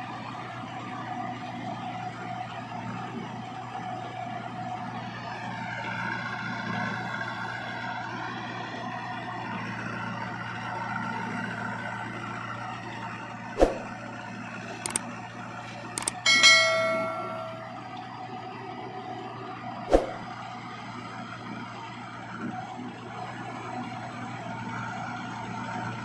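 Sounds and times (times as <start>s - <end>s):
diesel engines running: 0.0s - 26.0s
sharp metal clanks: 16.0s - 17.9s
loud ringing metallic clang: 16.1s - 17.9s.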